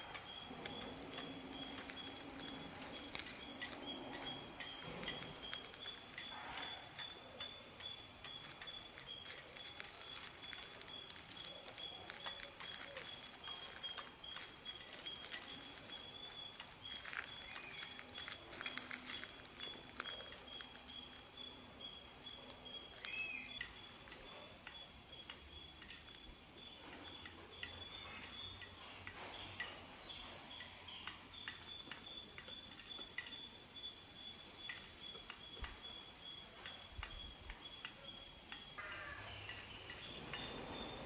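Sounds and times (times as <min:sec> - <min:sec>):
high insect trill: 0:00.0 - 0:41.0.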